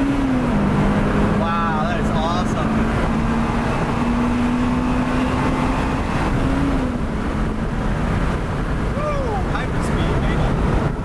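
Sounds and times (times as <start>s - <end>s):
car engine drone: 0.0s - 11.0s
road noise inside car cabin: 0.0s - 11.0s.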